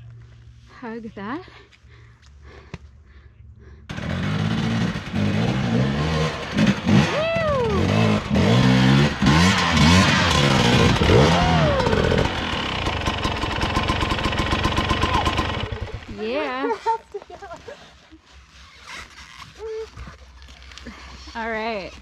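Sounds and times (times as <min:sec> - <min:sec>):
dirt bike engine revving: 0:03.9 - 0:16.6.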